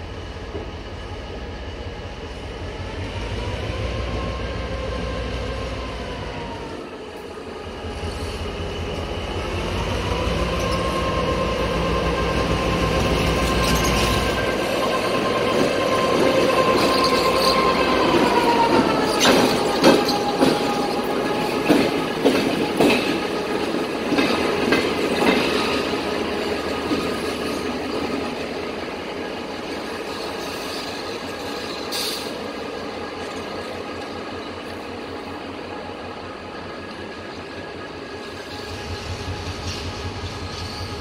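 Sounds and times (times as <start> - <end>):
diesel locomotive whine: 0.0 - 41.0
wheels clacking over rail joints: 12.8 - 32.4.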